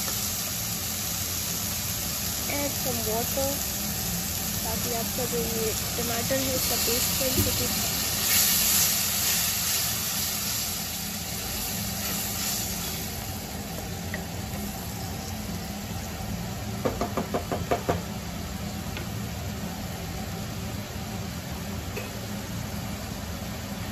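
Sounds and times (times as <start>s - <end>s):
steam hissing from pan: 0.0s - 21.5s
spoon knocking on pan: 16.8s - 18.0s.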